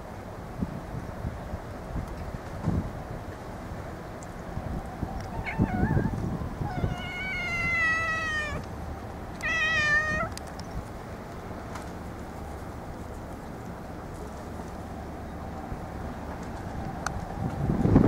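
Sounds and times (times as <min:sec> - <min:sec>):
cat meowing: 0:05.3 - 0:08.6, 0:09.4 - 0:10.3.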